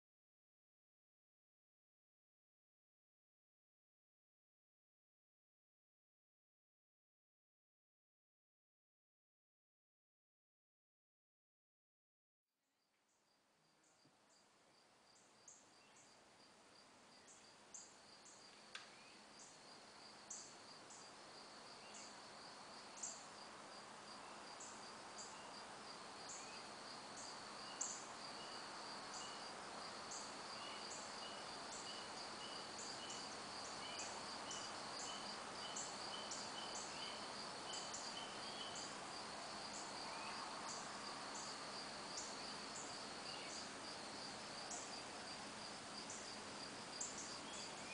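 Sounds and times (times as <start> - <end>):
crickets chirping: 13.3 - 47.9.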